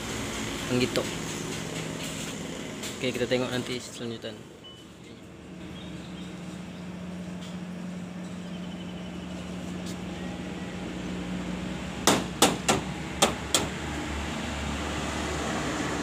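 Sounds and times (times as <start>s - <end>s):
sharp knocks: 12.0s - 13.8s.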